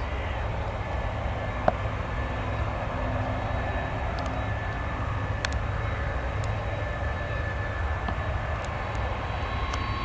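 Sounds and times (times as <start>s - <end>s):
jet engines rumbling with whine: 0.0s - 10.0s.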